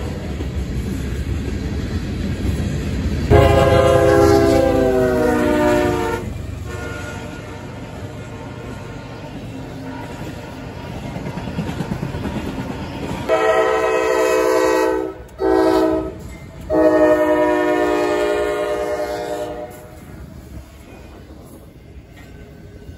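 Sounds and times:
freight train rumbling: 0:00.0 - 0:22.9
locomotive horn blasts: 0:03.3 - 0:09.0, 0:13.3 - 0:20.0.

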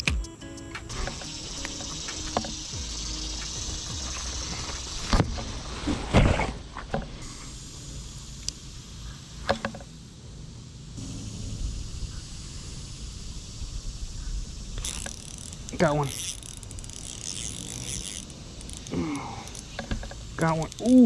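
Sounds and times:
fishing reel clicks: 0:00.9 - 0:05.2, 0:07.6 - 0:08.6, 0:14.7 - 0:21.0
leaves and branches rustling: 0:00.9 - 0:07.3
low rumble: 0:11.0 - 0:14.8.

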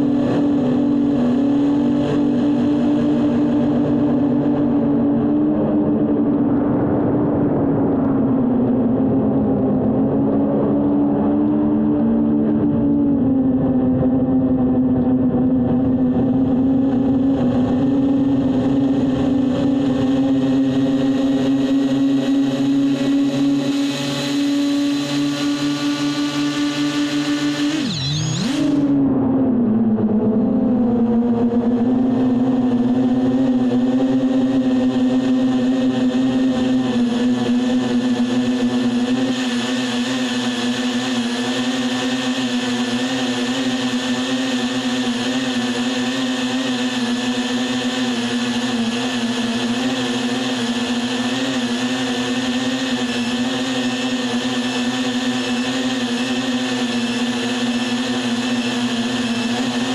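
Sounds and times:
drone propellers humming: 0:00.0 - 0:59.9.

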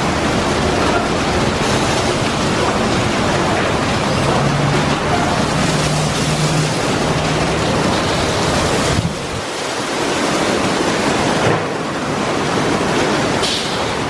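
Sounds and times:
car wash brushes scrubbing: 0:01.0 - 0:10.7.

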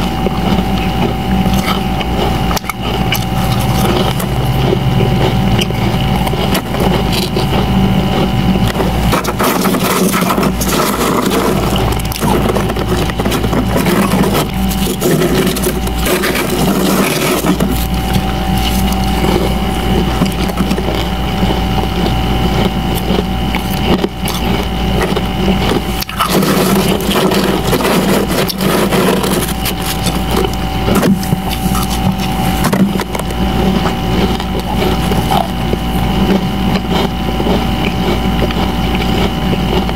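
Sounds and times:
frost crunching and crackling: 0:00.0 - 0:39.9
machine hum: 0:00.0 - 0:39.9.

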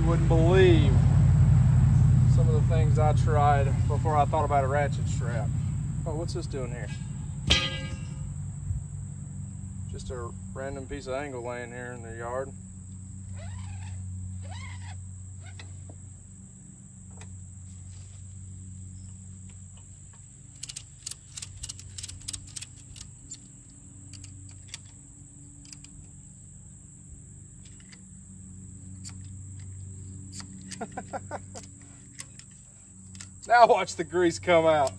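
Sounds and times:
low hum: 0:00.0 - 0:15.4
steady high drone: 0:02.0 - 0:11.4
ratchet strap clicks: 0:20.5 - 0:25.0, 0:25.6 - 0:26.1, 0:29.0 - 0:31.0, 0:31.6 - 0:33.5, 0:34.7 - 0:34.9.

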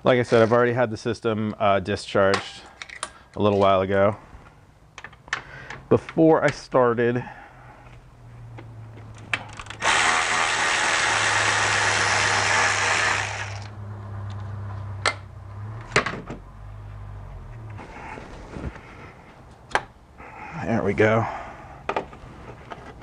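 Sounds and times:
electric ratchet running: 0:09.6 - 0:13.8.

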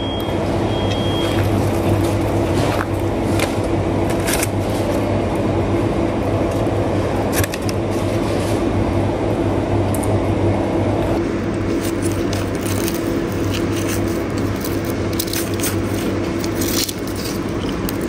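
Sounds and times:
low mechanical hum: 0:00.0 - 0:18.0.

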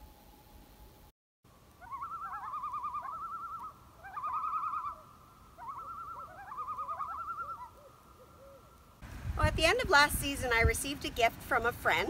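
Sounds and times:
wavering bird trills: 0:01.8 - 0:09.0.

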